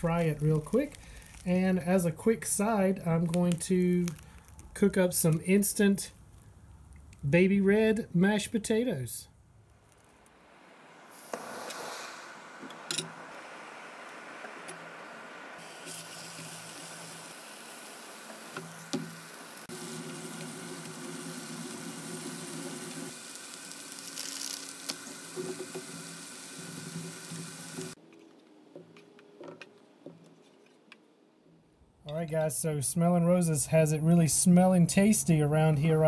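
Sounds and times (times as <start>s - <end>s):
meat sizzling in a frying pan: 11.2s - 28.0s.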